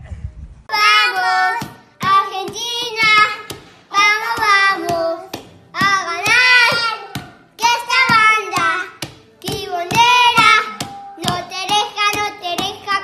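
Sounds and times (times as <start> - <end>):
children singing: 0.7 - 13.0.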